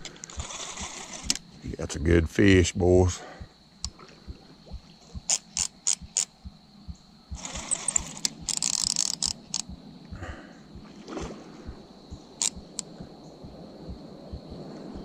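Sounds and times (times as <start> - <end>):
fishing reel ratcheting: 0.0 - 1.4, 5.3 - 6.3, 7.3 - 9.7, 12.4 - 12.9.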